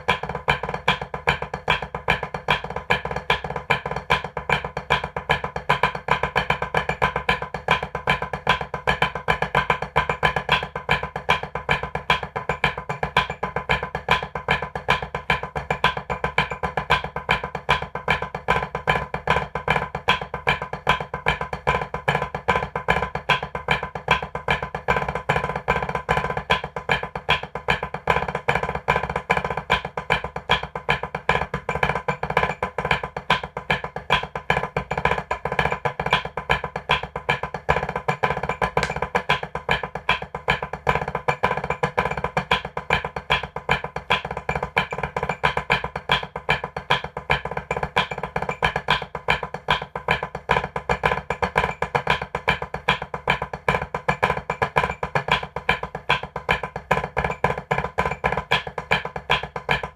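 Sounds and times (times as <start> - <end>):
drumsticks on practice pad: 18.9 - 59.9.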